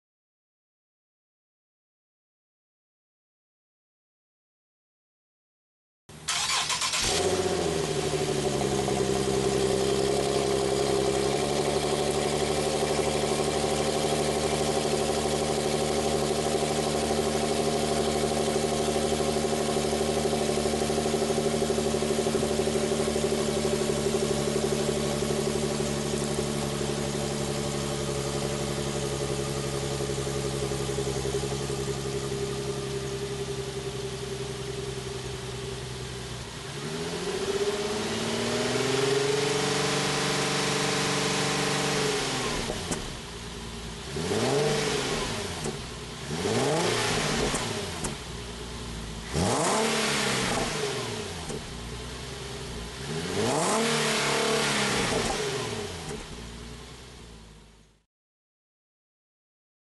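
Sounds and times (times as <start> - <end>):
car engine cold start and idle: 6.1 - 58.0.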